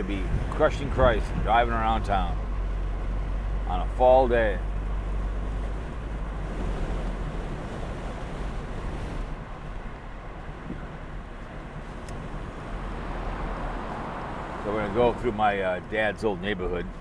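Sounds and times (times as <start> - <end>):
car road and engine rumble: 0.0 - 17.0.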